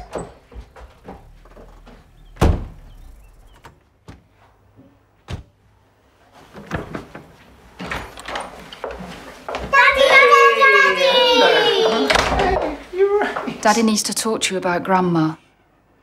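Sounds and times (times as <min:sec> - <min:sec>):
door thudding shut: 0:00.0 - 0:04.2, 0:05.2 - 0:05.6.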